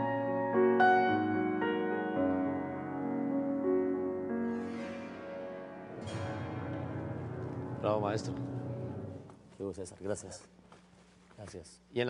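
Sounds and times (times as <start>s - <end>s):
grand piano playing: 0.0s - 9.3s.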